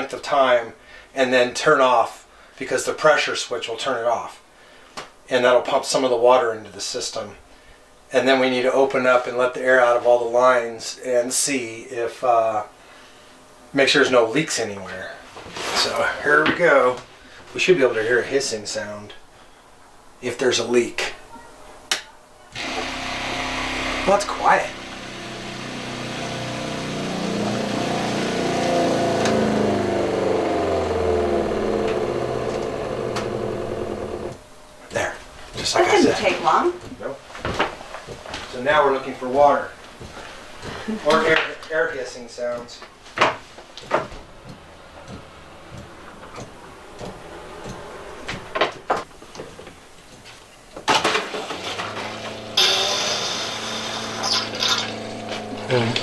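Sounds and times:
water pump humming: 22.6 - 37.2, 43.6 - 56.0.

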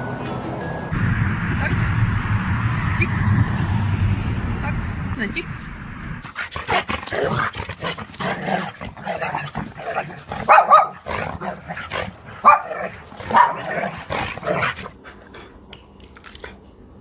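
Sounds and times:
dog barking: 8.6 - 14.9.

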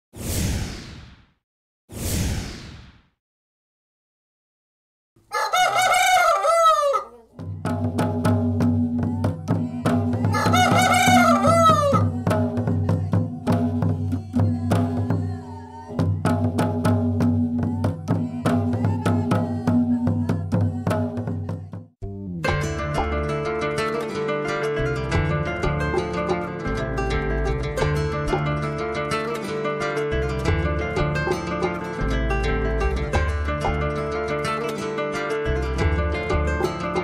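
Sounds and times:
rooster crowing: 5.2 - 7.3, 10.3 - 12.1
music with percussive beat: 7.4 - 15.4, 16.0 - 23.4.

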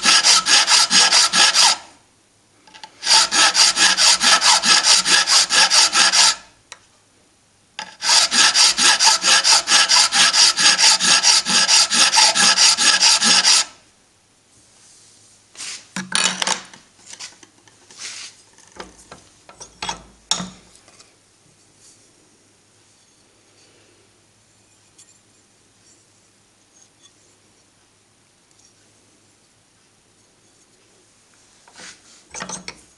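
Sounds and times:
hand file rasping on metal: 0.0 - 1.8, 2.8 - 6.5, 7.8 - 13.8.

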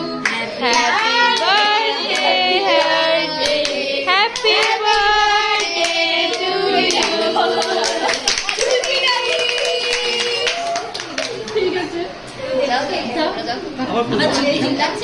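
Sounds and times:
people singing together: 0.0 - 10.9
hand clapping in time: 5.8 - 11.6.

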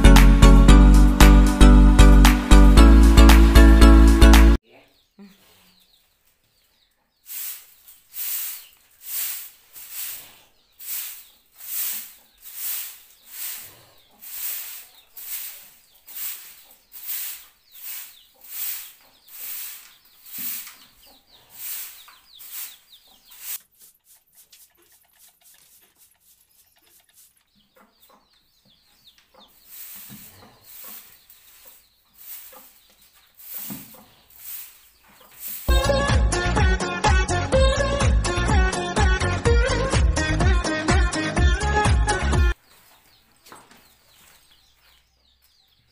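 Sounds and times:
hand broom sweeping floor: 7.2 - 27.6, 29.4 - 36.0.

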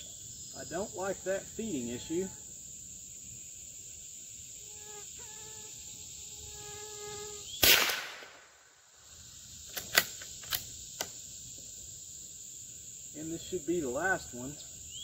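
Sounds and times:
high buzz of insects: 0.0 - 15.0
rifle shot: 7.6 - 8.7
rifle bolt metallic clicks: 9.7 - 11.1.

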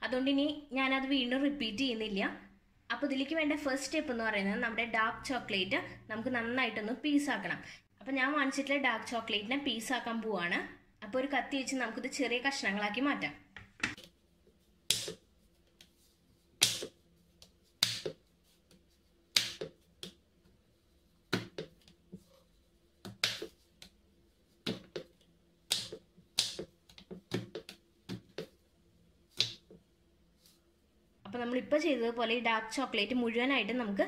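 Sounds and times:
knife chopping chocolate on board: 14.8 - 15.2, 16.6 - 17.0, 17.8 - 18.2, 19.3 - 20.2, 21.3 - 21.9, 23.0 - 23.6, 24.6 - 28.6, 29.4 - 29.8.

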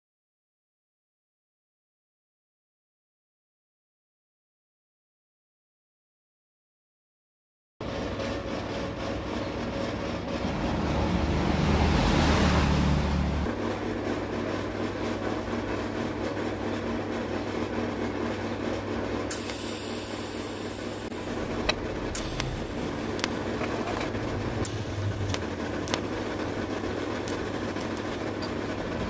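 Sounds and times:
machine hum with electrical drone: 7.8 - 29.0
sharp clicks: 21.6 - 26.2.

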